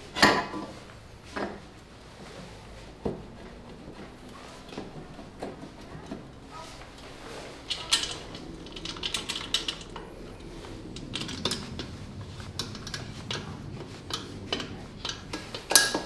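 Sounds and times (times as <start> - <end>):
small metal tools clinking: 7.4 - 16.0.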